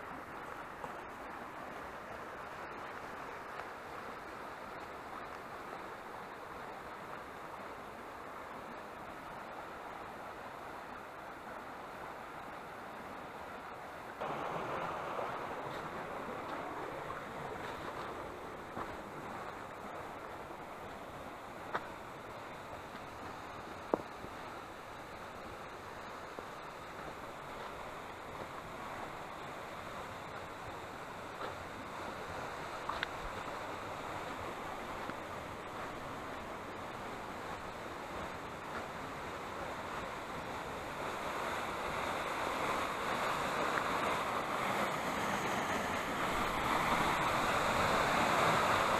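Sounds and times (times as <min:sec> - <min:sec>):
stream rushing over rocks: 0:00.0 - 0:48.9
light ticks: 0:04.7 - 0:05.5, 0:32.8 - 0:33.6.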